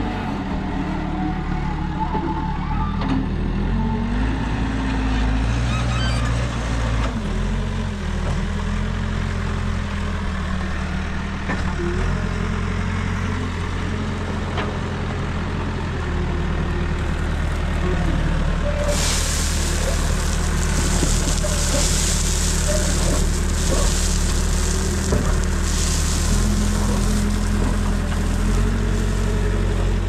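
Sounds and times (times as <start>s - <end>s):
diesel engine running: 6.6s - 30.0s
gravel pouring from bucket: 18.8s - 30.0s.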